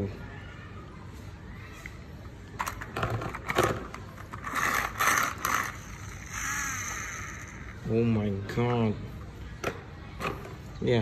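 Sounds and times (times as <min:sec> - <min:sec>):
plastic toy clicks and clatters: 0:02.6 - 0:07.7
toy scraping on concrete: 0:04.2 - 0:07.9.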